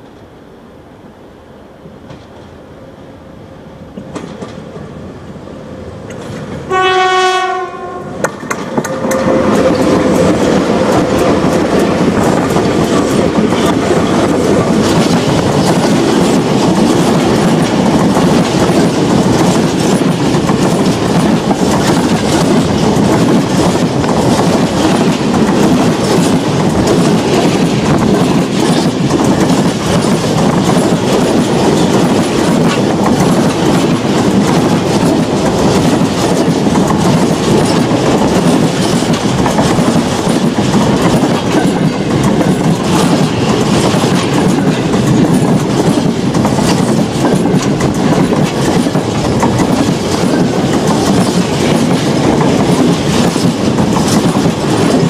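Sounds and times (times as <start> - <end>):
steel wheels rumbling on rail: 0.0 - 55.0
locomotive horn: 6.7 - 10.3
wheels clicking over rail joints: 8.2 - 55.0.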